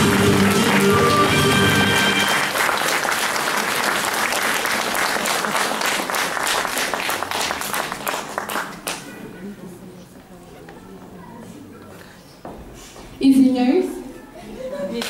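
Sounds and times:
song backing music: 0:00.0 - 0:02.8
audience applauding: 0:00.0 - 0:09.2.

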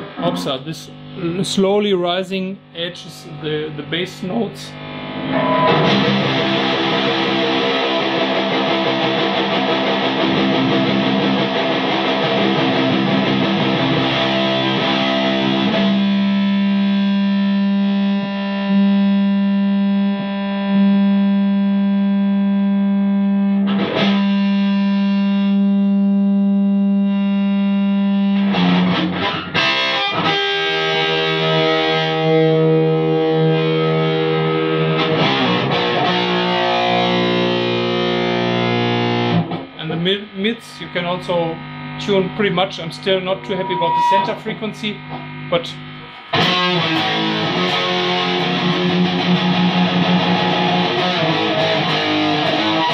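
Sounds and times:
distorted electric guitar: 0:00.0 - 0:52.9.

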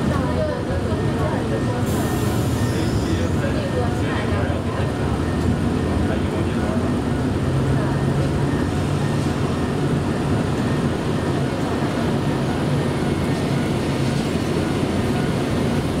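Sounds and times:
diesel railcar engine idling: 0:00.0 - 0:16.0.

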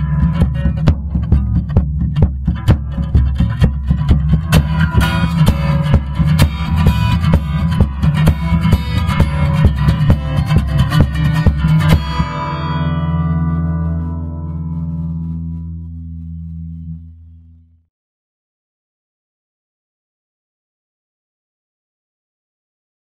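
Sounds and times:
guitar and bass over drum beat: 0:00.0 - 0:17.0.

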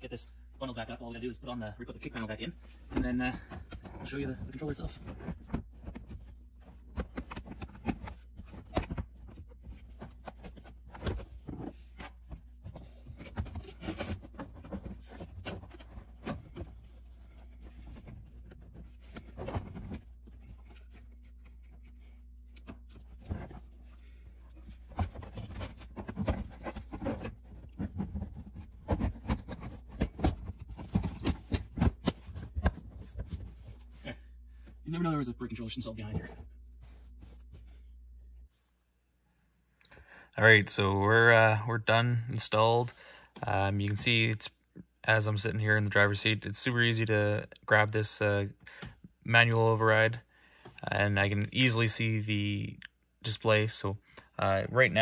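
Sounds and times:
plastic panel rubbing and scraping: 0:03.0 - 0:33.8.

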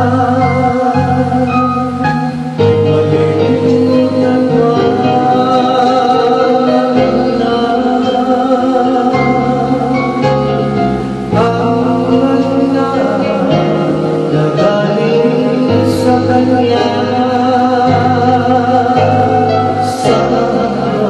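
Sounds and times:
woman singing a ballad: 0:00.0 - 0:10.6
instrumental accompaniment: 0:00.0 - 0:21.0.

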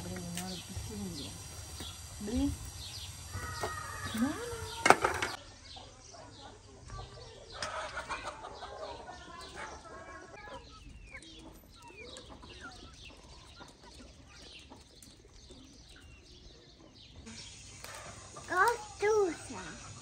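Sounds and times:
faint birdsong chirps: 0:00.0 - 0:20.0.

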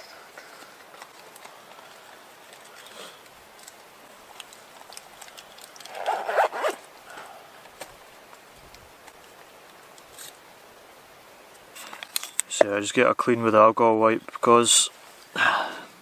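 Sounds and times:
rustling: 0:00.0 - 0:10.4
zip pulled on fabric pouch: 0:05.9 - 0:06.8.

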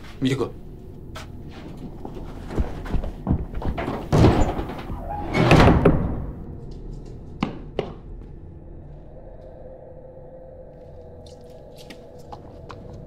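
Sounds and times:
low steady hum: 0:00.0 - 0:13.0
heavy banging crashes: 0:03.2 - 0:06.4.

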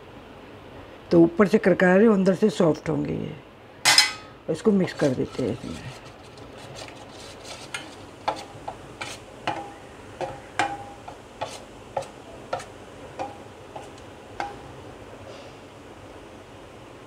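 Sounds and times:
metal spoon clinking in bowl: 0:03.9 - 0:04.3.

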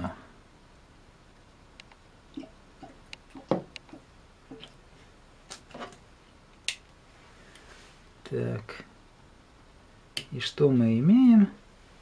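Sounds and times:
objects knocking on wooden bench: 0:03.4 - 0:03.8.

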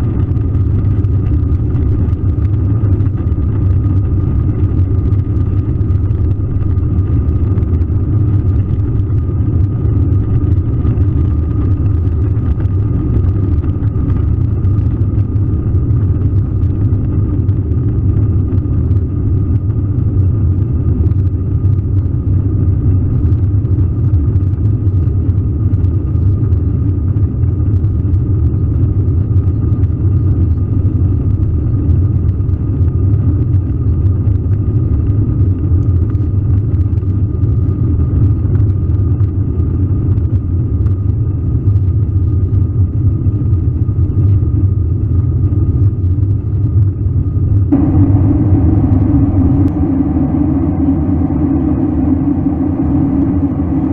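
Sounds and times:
jet engines rumbling: 0:00.0 - 0:53.9
thin even whine: 0:47.6 - 0:53.9.

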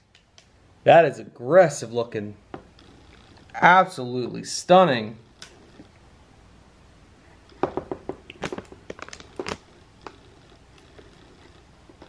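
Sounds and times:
packaging rustling: 0:07.6 - 0:10.3.

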